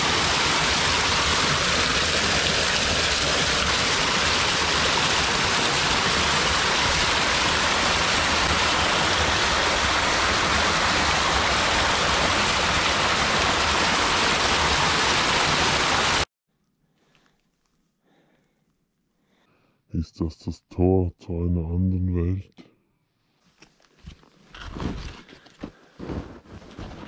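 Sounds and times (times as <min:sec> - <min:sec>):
stream cascading over rocks: 0:00.0 - 0:16.3.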